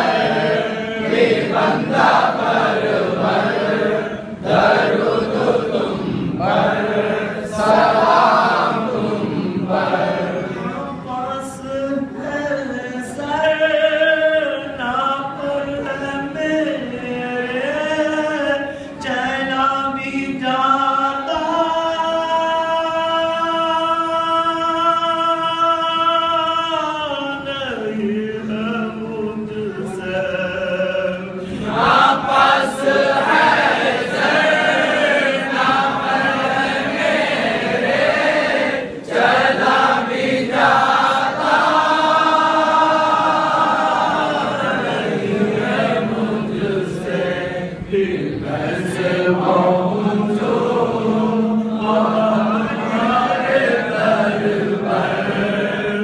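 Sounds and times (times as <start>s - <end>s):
men chanting in a group: 0.0s - 19.0s, 28.4s - 56.0s.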